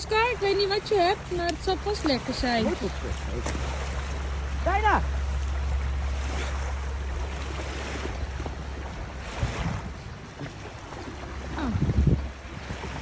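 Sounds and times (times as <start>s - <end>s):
small waves lapping on shore: 0.0s - 13.0s
wind buffeting microphone: 6.1s - 13.0s.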